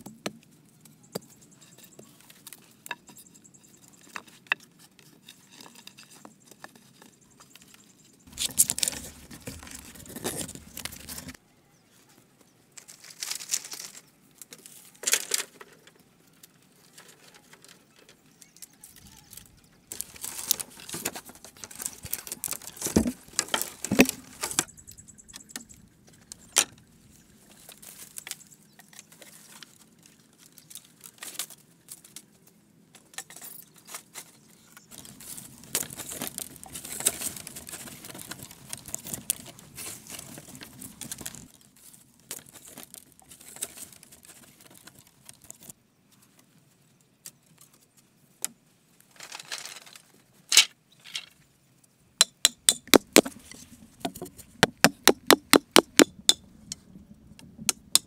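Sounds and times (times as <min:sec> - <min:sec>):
bamboo poles clacking: 0:01.1 - 0:11.4, 0:12.8 - 0:24.7, 0:32.9 - 0:45.7, 0:48.4 - 0:51.3, 0:52.2 - 0:58.0
rustling of dry material: 0:03.6 - 0:15.6, 0:18.9 - 0:24.7, 0:33.6 - 0:46.9.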